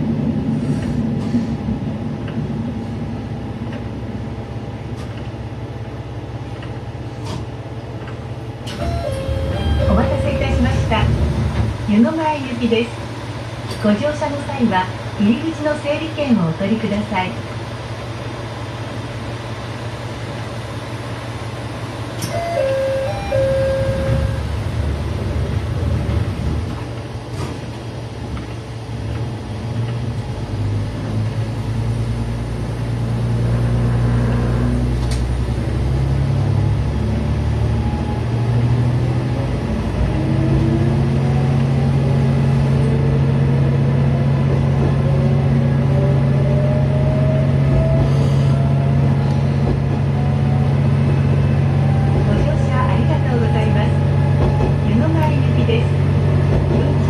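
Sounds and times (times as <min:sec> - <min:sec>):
diesel railcar engine: 0:00.0 - 0:57.0
short beep: 0:08.8 - 0:10.3, 0:22.3 - 0:24.4.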